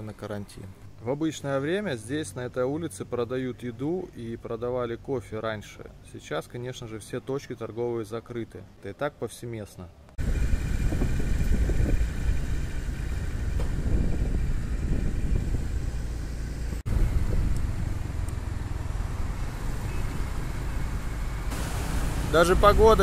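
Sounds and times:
wind and road noise rumble: 9.9s - 23.0s
motor scooter running: 10.2s - 23.0s.

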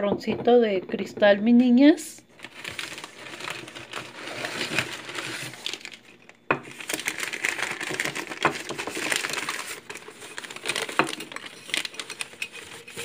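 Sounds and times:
wrappings crinkling and rustling: 2.4s - 13.0s
decorations knocking and clinking: 2.7s - 13.0s.

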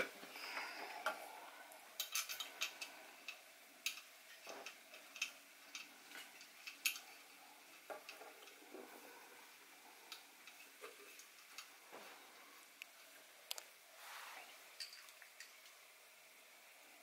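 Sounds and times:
small metallic clicks: 2.0s - 7.2s.

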